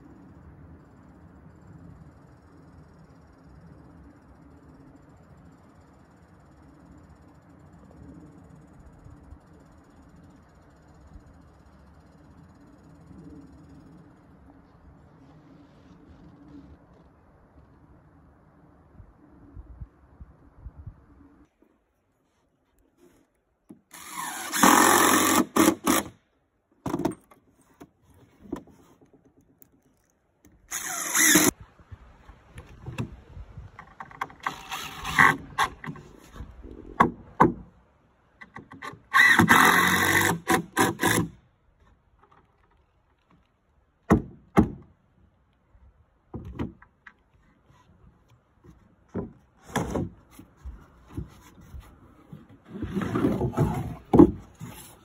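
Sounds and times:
cordless driver driving screws: 23.9 - 26.1, 29.9 - 31.5
boards knocking and rubbing: 48.6 - 55.0.

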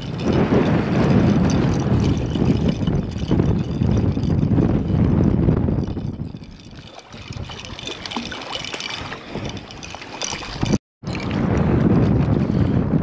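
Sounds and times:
wind rumbling on microphone: 0.0 - 13.0
fish splashing in water: 6.6 - 10.8.

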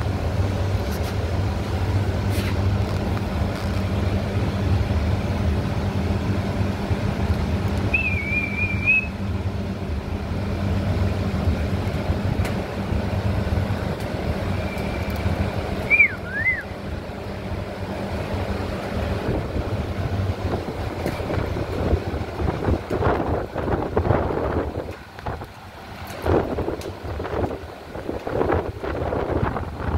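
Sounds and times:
steady low hum: 0.0 - 29.9
whistled call: 7.9 - 9.2, 15.8 - 16.8.

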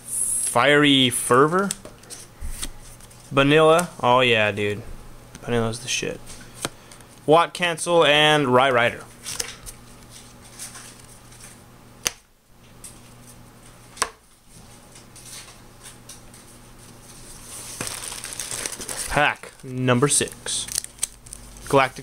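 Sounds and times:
cards rustling: 9.2 - 11.6, 17.0 - 22.0
hands rustling in fabric bag: 17.2 - 19.6.

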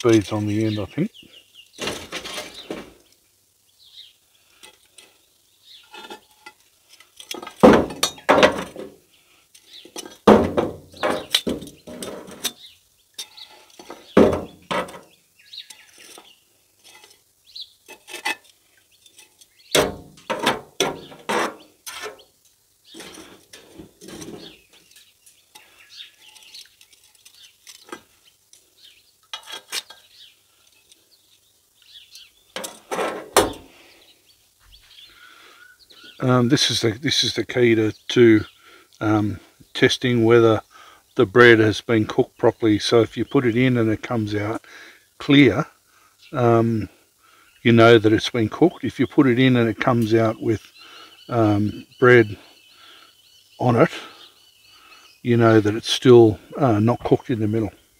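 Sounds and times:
metal tongs clinking on charcoal: 5.8 - 8.3, 11.1 - 13.9, 21.9 - 28.6, 29.2 - 30.9.

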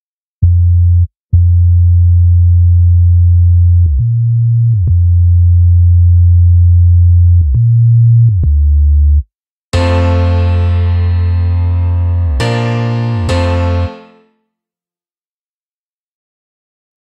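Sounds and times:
sine-wave sub-bass notes: 0.4 - 9.2, 9.8 - 14.2.

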